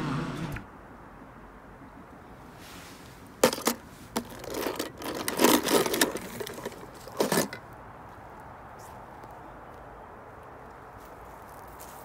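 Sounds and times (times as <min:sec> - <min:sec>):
toy cars knocking in plastic tub: 0:03.4 - 0:07.6
toy cars rattling: 0:03.4 - 0:07.6.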